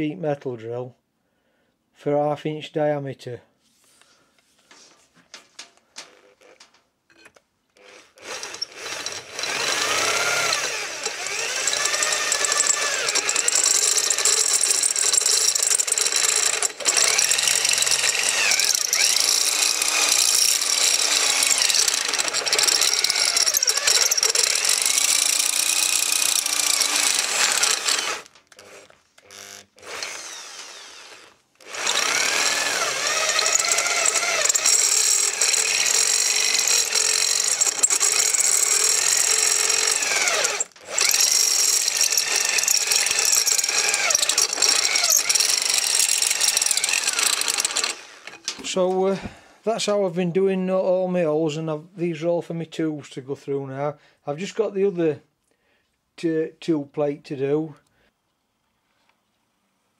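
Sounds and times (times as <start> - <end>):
cordless drill cutting metal: 7.8 - 48.7.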